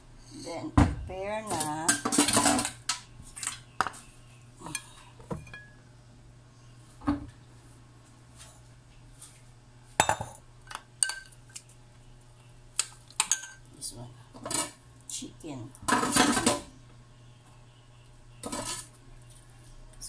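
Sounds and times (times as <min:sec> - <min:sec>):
low steady hum: 0:00.0 - 0:20.0
dishes clinking on countertop: 0:04.7 - 0:05.8, 0:10.0 - 0:11.4.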